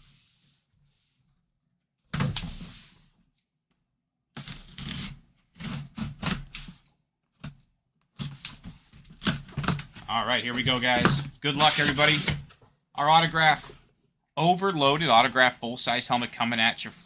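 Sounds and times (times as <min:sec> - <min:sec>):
blade cutting tape on cardboard: 0:04.4 - 0:06.8, 0:11.6 - 0:12.4.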